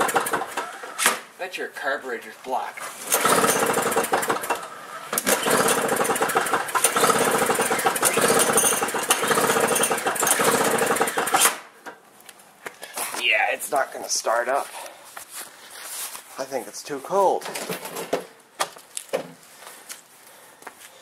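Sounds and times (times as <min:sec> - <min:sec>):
snowblower engine cranking: 0:00.0 - 0:01.0, 0:03.0 - 0:11.6.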